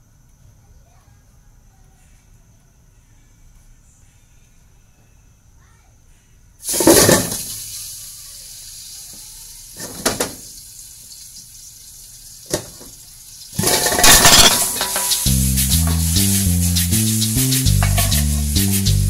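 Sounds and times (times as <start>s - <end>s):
hot oil sizzling in a wok: 6.6s - 19.0s
metal lid clanking: 6.7s - 7.5s, 9.8s - 10.4s, 12.5s - 12.9s, 13.6s - 16.2s, 17.8s - 18.5s.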